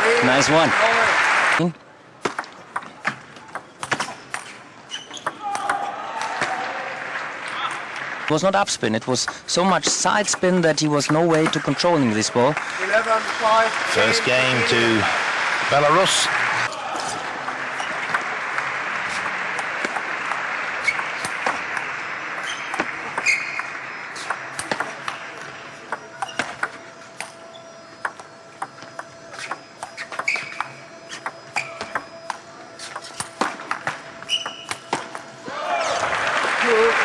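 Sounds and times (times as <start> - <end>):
crowd applause: 0.0 - 1.7, 6.0 - 9.0, 12.0 - 24.5, 35.4 - 37.0
shoe squeaks: 4.0 - 5.4, 20.8 - 21.3, 22.4 - 24.3, 26.0 - 26.6, 27.3 - 28.4, 29.2 - 33.4, 34.2 - 34.9
table tennis ball pocks: 17.4 - 25.3.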